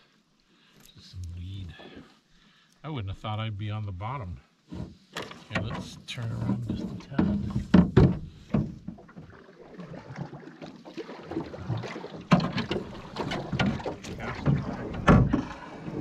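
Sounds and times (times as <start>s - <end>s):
paddle splashing in water: 5.8s - 16.0s
paddle knocking on canoe hull: 6.4s - 9.3s, 11.0s - 15.6s.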